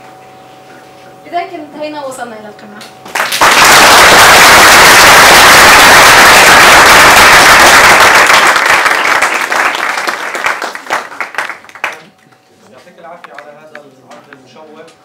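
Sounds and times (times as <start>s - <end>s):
person clapping near microphone: 3.1s - 4.2s, 5.9s - 12.1s
audience applauding: 3.1s - 12.1s.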